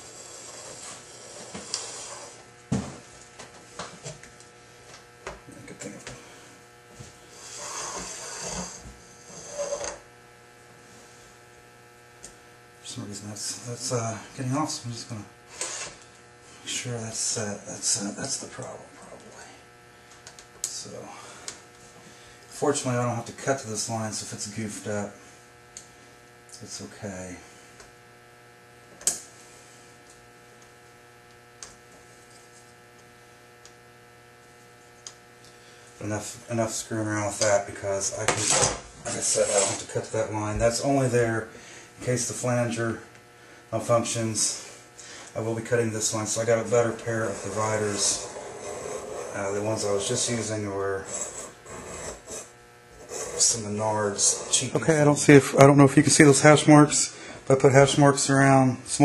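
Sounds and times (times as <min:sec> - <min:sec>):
faint electrical hum: 0:00.0 - 0:59.0
metal point scratching sheet metal: 0:07.4 - 0:10.0, 0:38.3 - 0:39.9, 0:47.2 - 0:50.3, 0:51.0 - 0:54.8.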